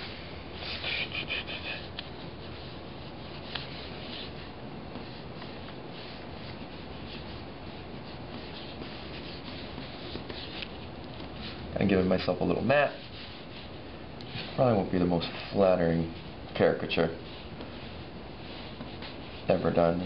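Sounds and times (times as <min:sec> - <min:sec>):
pens scratching on paper: 0:00.6 - 0:11.6, 0:17.0 - 0:19.8.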